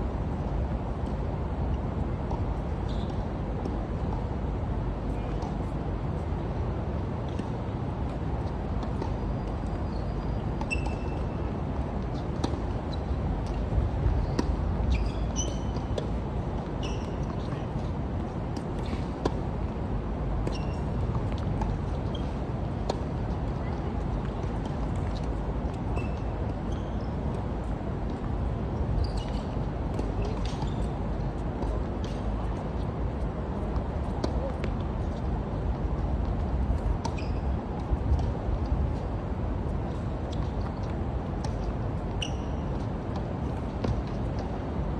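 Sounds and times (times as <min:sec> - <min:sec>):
tennis balls bouncing and hit: 0:00.3 - 0:04.4, 0:06.9 - 0:44.6.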